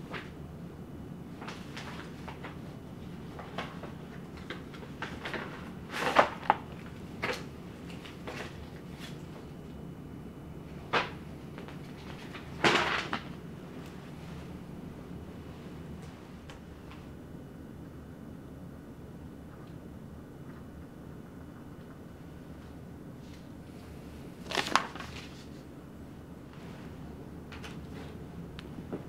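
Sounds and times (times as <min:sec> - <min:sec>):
low steady hum: 0:00.0 - 0:29.0
paper rustling: 0:24.4 - 0:25.7.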